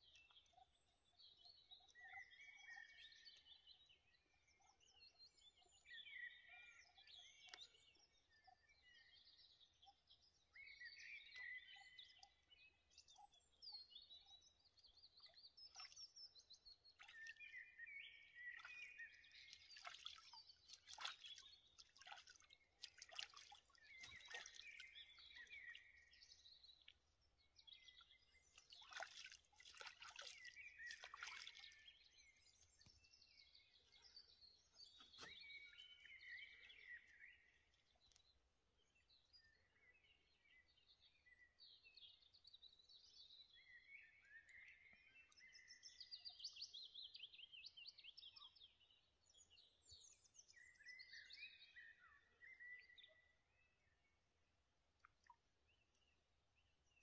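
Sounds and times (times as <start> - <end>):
songbirds chirping: 0.0 - 57.0
water dripping: 19.4 - 25.4, 28.6 - 31.7.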